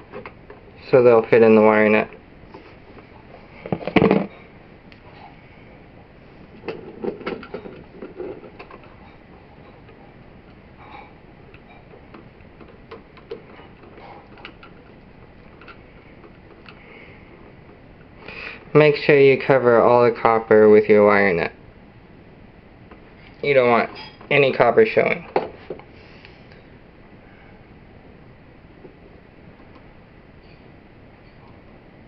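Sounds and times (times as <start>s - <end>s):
hands handling electrical wires: 0.0s - 5.1s, 6.4s - 18.8s.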